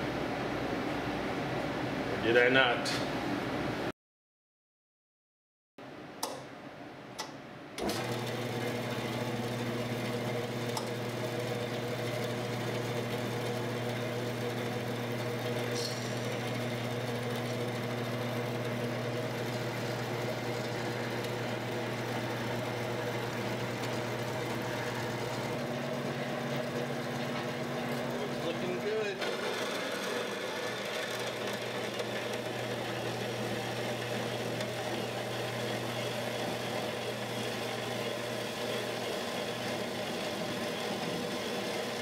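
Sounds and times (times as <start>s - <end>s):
bandsaw pump electric hum: 7.2s - 42.0s.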